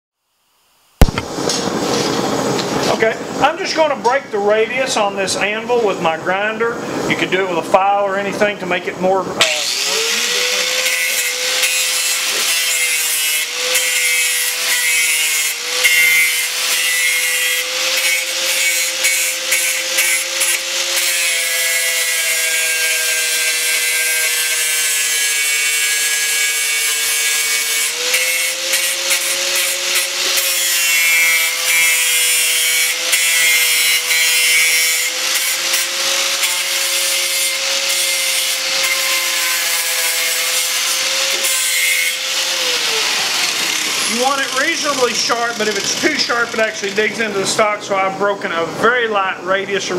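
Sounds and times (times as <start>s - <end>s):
angle grinder grinding metal: 9.4s - 47.7s.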